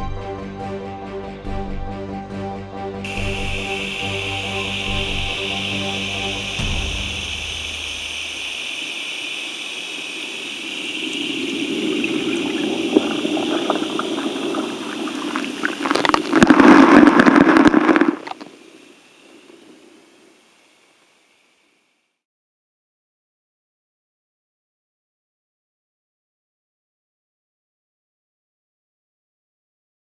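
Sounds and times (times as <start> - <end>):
dense crackling clicks: 3.1 - 20.0
water noise: 3.1 - 21.8.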